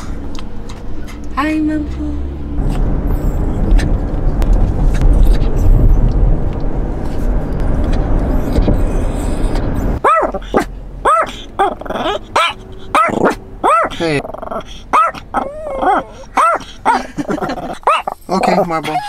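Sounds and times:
car road noise rumble: 0.0 - 19.0
dog whining: 8.3 - 19.0.

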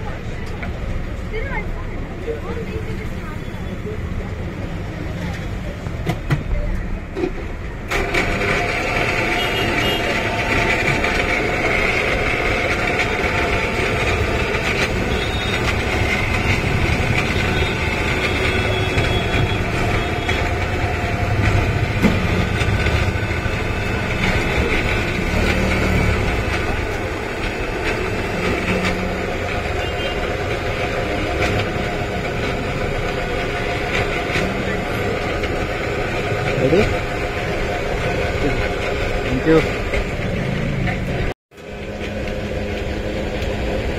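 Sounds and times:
car engines idling and running: 0.0 - 43.9.

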